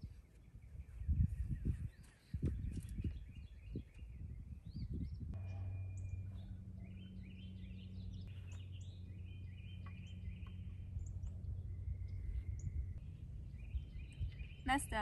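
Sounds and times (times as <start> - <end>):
birds chirping and whistling: 0.0 - 15.0
low outdoor hum: 3.4 - 15.0.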